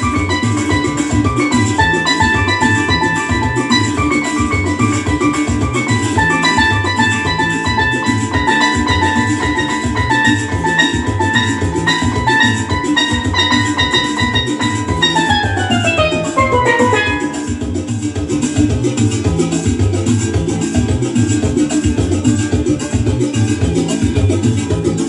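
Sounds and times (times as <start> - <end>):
steelpan melody: 0.0 - 19.7
backing track drum beat: 0.0 - 20.5.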